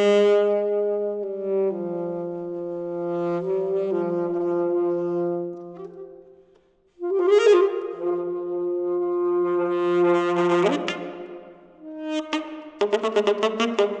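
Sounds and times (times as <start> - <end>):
saxophone long held notes: 0.0 - 14.0.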